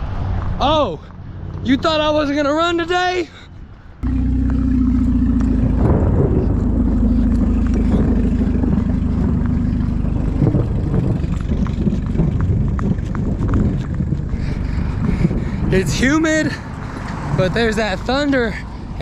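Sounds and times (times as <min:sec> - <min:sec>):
wind buffeting microphone: 0:03.6 - 0:19.0
steady low hum: 0:04.0 - 0:15.8.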